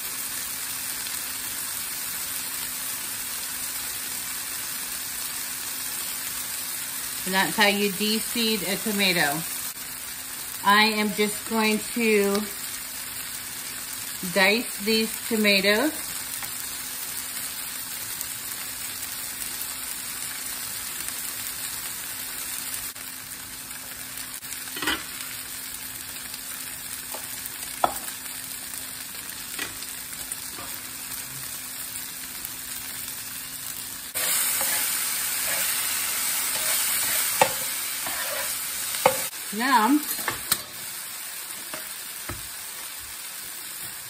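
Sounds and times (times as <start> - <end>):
vegetables sizzling on a griddle: 0.0 - 44.0.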